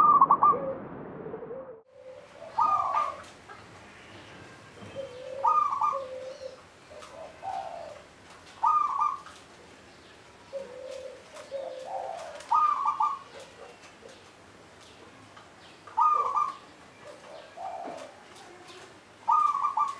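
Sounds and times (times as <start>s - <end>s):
dove cooing: 1.5s - 3.7s, 4.5s - 9.4s, 10.5s - 14.4s, 15.9s - 19.9s.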